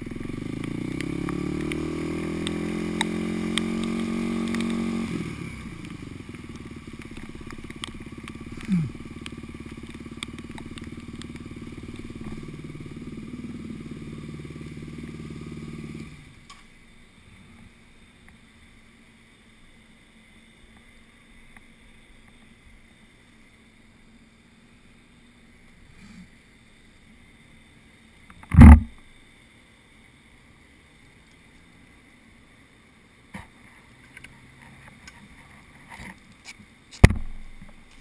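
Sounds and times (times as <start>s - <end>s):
rain: 0.0s - 38.0s
faint hum: 4.6s - 38.0s
loud thump on camera: 28.5s - 29.0s, 37.0s - 37.4s.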